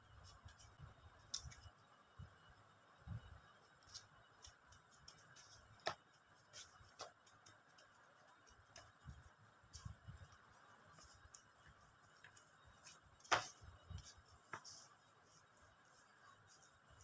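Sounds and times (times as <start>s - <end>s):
faint taps and clicks on plastic mat: 3.9s - 14.8s.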